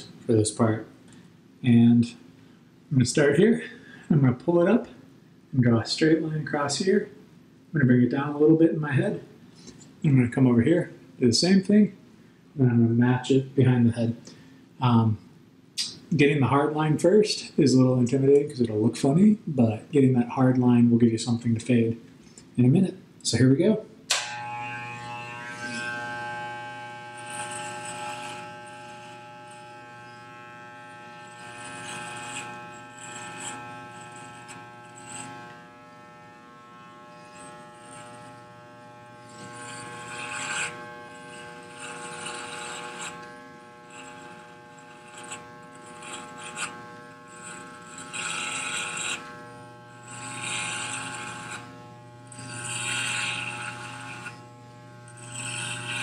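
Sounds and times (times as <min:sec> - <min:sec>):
clipper blades rasping through hair: 0:24.1 - 0:56.0
electric hair clippers buzzing: 0:24.1 - 0:56.0.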